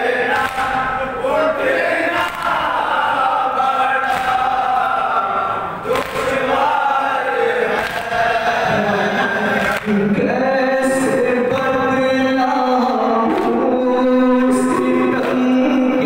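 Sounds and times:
men chanting a lament: 0:00.0 - 0:16.0
person reciting into a microphone: 0:00.0 - 0:16.0.

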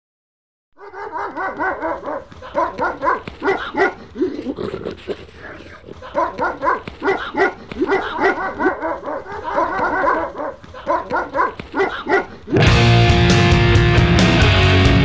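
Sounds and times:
dogs barking and yelping: 0:00.8 - 0:12.7.

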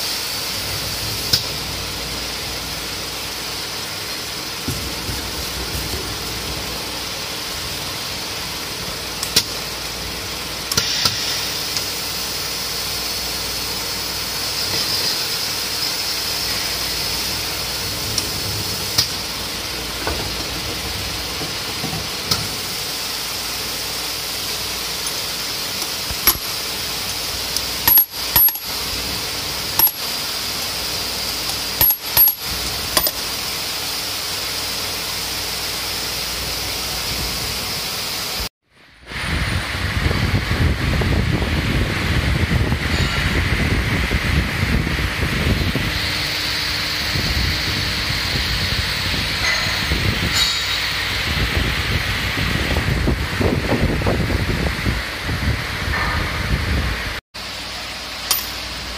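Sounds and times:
metallic clinks of tool parts: 0:27.8 - 0:28.7, 0:29.8 - 0:30.0, 0:31.8 - 0:32.4, 0:58.3 - 0:58.6.

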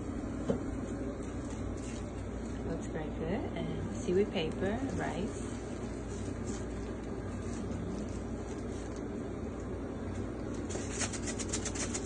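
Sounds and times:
kitchen machinery hum: 0:00.0 - 0:12.0
seeds rattling in shaker: 0:04.9 - 0:12.0.

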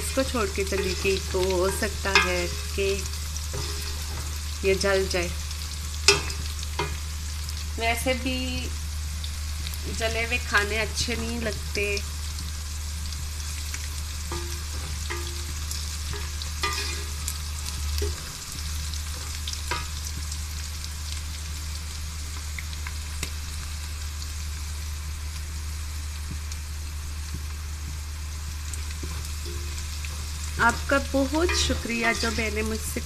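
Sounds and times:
low hum: 0:00.0 - 0:19.8
onions sizzling in oil: 0:00.0 - 0:33.0.

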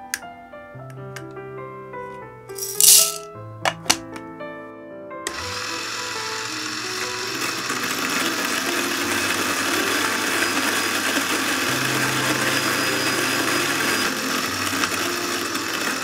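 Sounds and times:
electric coffee grinder running: 0:02.6 - 0:03.2, 0:05.3 - 0:16.0.

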